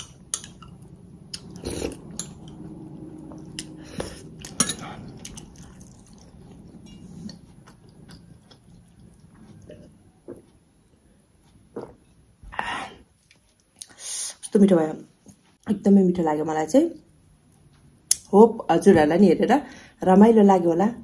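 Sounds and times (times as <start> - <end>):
chewing and wet mouth sounds: 0.4 - 10.5.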